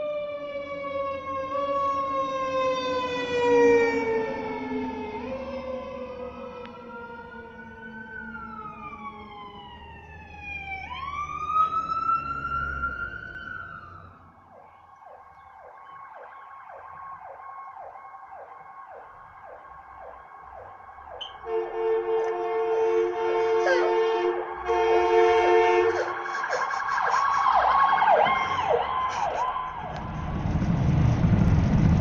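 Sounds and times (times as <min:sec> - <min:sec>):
fast cycling siren: 0:00.0 - 0:30.5
wailing siren: 0:00.0 - 0:31.7.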